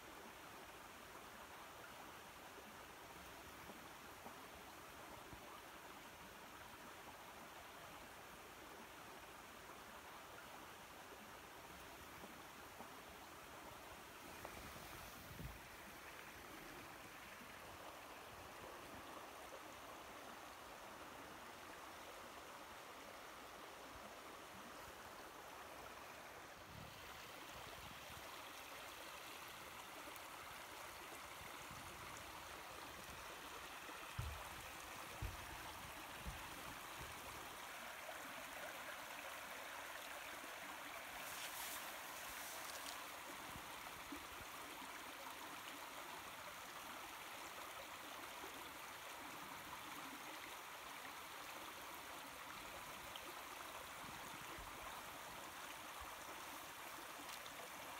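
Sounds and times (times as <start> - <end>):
creek babbling over rocks: 0.0 - 57.9.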